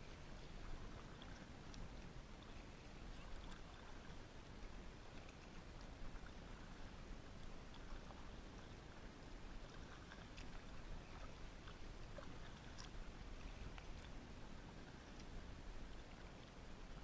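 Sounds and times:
low steady rumble: 0.0 - 17.0
paddle swishing through water: 0.0 - 17.0
small splashes: 7.7 - 14.2.

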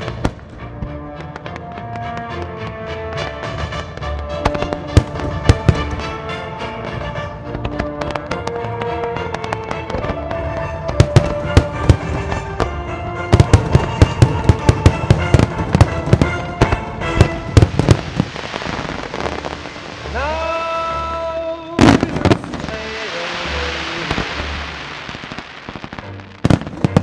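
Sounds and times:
music: 0.0 - 27.0
fireworks bangs: 4.4 - 21.2, 21.8 - 27.0
fireworks crackling hiss: 17.2 - 27.0.

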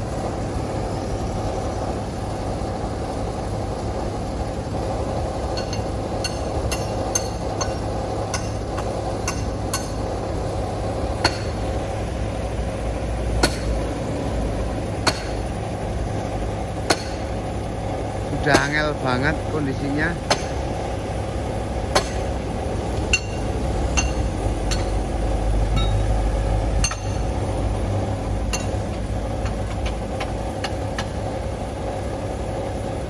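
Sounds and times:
diesel engine idling: 0.0 - 33.0
sharp metallic knocks: 5.5 - 10.0, 11.2 - 11.6, 13.4 - 13.8, 15.0 - 15.5, 16.9 - 17.3, 18.4 - 18.8, 20.2 - 20.6, 21.9 - 22.4, 23.1 - 25.1, 25.7 - 26.1, 26.8 - 27.3, 28.5 - 31.2.

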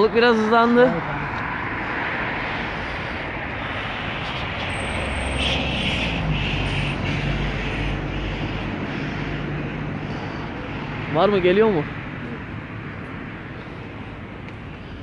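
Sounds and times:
low engine drone: 0.0 - 15.0
wind: 0.0 - 15.0.

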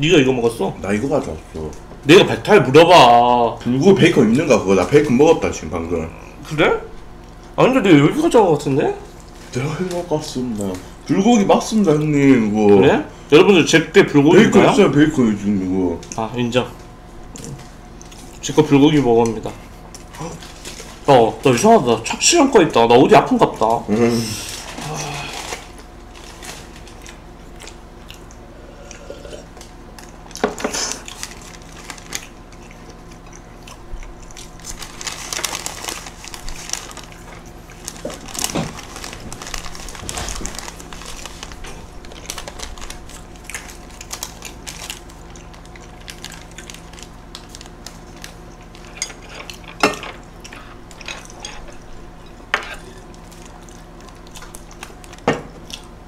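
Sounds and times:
steady low hum: 0.0 - 56.0
chewing: 17.3 - 18.5, 19.2 - 21.0, 24.6 - 55.9
paper wrapper rustling: 30.8 - 32.4, 34.4 - 48.9.

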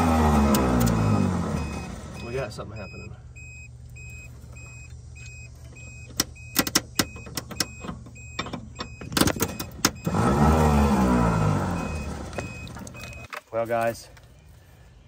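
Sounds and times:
starter motor whirring: 0.0 - 2.6, 3.9 - 13.3
electronic beep: 0.9 - 10.2, 11.7 - 13.3.

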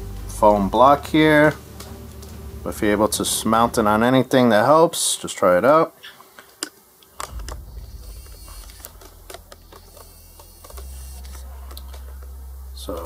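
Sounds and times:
low handling rumble: 7.2 - 13.0.

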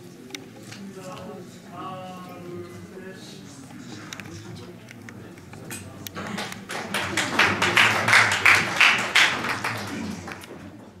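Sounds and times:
audience applauding: 6.2 - 10.7.

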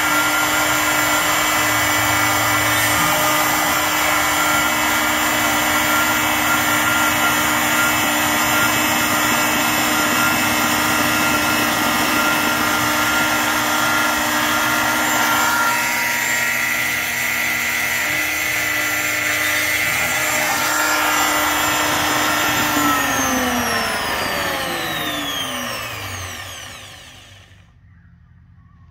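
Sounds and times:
router spindle whine: 0.0 - 27.8.

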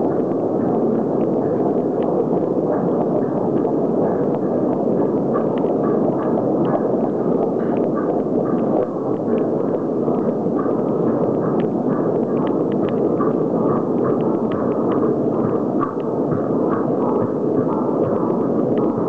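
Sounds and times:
faint light ticks: 7.4 - 19.0.

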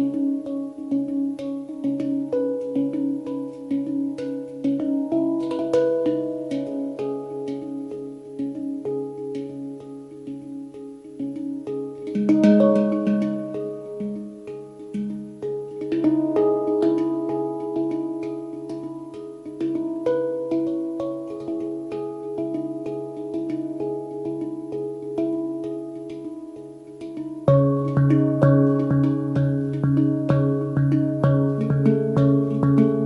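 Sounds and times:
handpan melody: 0.0 - 33.0
steady low tone: 12.0 - 33.0.

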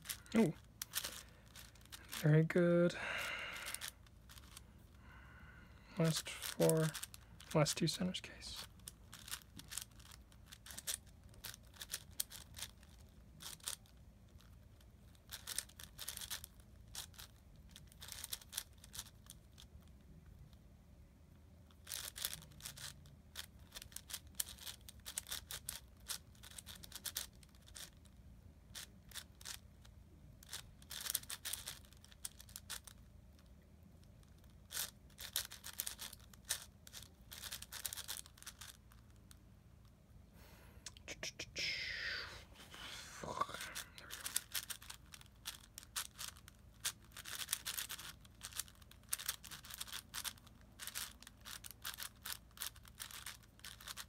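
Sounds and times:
puzzle cube clicking: 0.0 - 2.2, 3.6 - 4.6, 8.6 - 14.5, 15.3 - 19.7, 21.8 - 27.9, 30.4 - 33.0, 34.7 - 38.8, 43.2 - 54.0.

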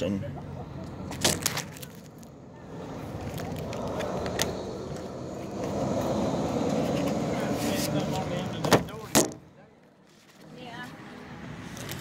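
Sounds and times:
outdoor rumble: 0.0 - 9.5.

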